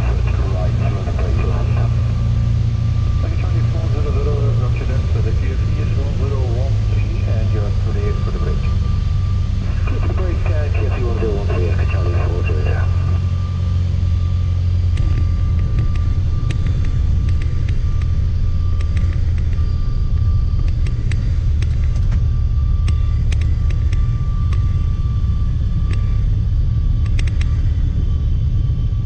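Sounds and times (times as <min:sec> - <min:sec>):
propeller plane engine droning: 0:00.0 - 0:29.0
thin steady whine: 0:00.0 - 0:29.0
light clicks: 0:22.8 - 0:24.7, 0:27.0 - 0:27.6.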